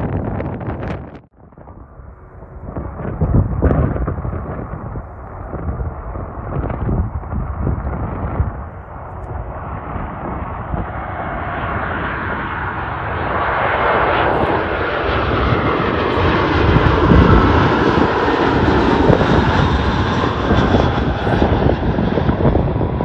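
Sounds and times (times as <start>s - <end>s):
jet aircraft roar overhead: 0.0s - 23.0s.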